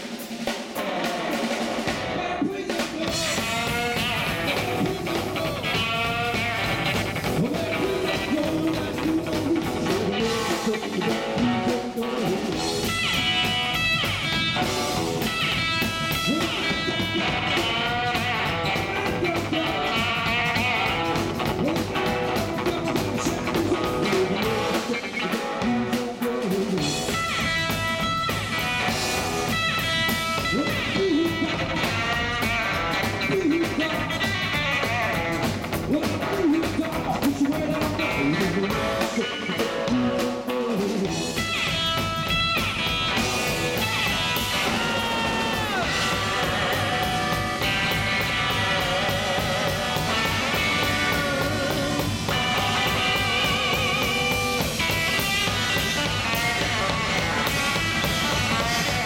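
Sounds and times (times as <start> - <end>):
rockabilly band playing live: 0.0 - 59.0.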